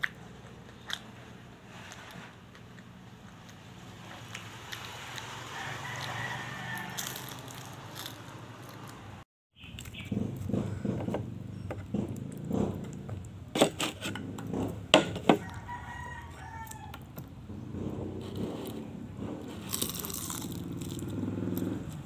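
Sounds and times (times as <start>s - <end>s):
chewing and crunching food: 0.0s - 11.0s, 11.8s - 14.7s, 15.4s - 17.1s, 18.2s - 22.0s
rooster crowing: 5.3s - 8.1s, 15.4s - 17.1s.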